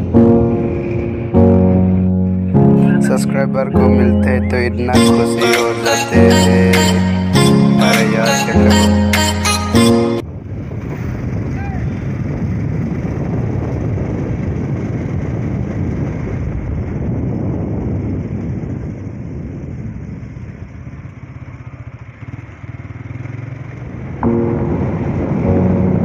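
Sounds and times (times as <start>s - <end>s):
road and wind noise: 0.0s - 26.0s
motorcycle engine running: 10.2s - 26.0s.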